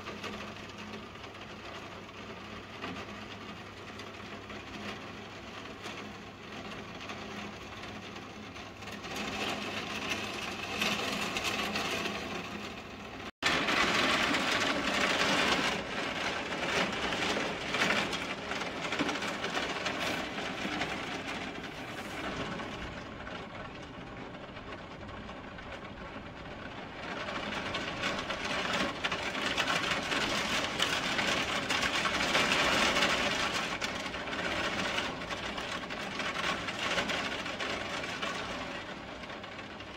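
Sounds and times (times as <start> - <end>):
heavy rain pouring: 13.4 - 23.6, 26.9 - 38.7.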